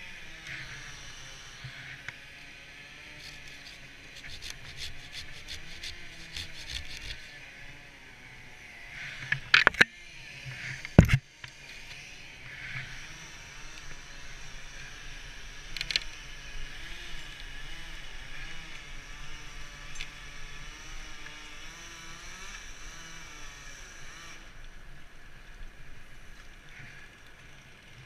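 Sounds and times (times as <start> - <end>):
hand saw rasping through wood: 3.0 - 7.4.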